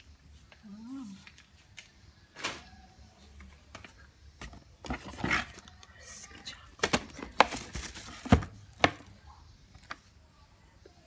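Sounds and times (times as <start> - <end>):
plastic wrapping crinkling: 6.8 - 9.0.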